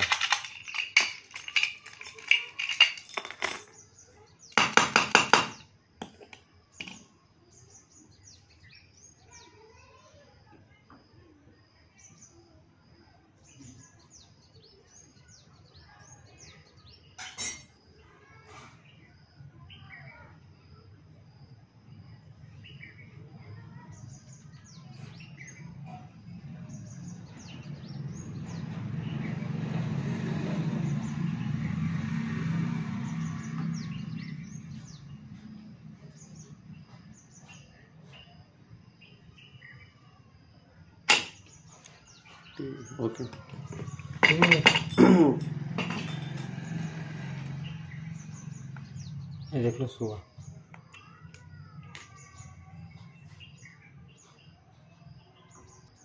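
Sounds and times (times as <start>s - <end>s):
padlock and keys clattering on concrete: 0.0s - 7.1s, 17.2s - 17.8s, 41.1s - 42.3s, 43.3s - 47.2s
birds chirping: 22.4s - 40.0s, 41.1s - 56.0s
low vehicle rumble: 26.4s - 36.9s, 42.1s - 50.7s.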